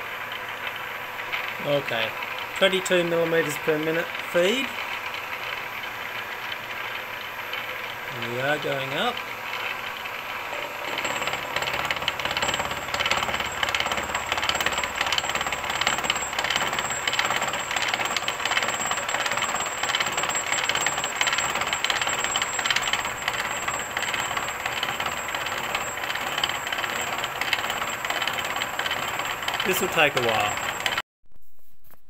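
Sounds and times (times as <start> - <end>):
milling machine cutting steel: 8.2 - 31.0.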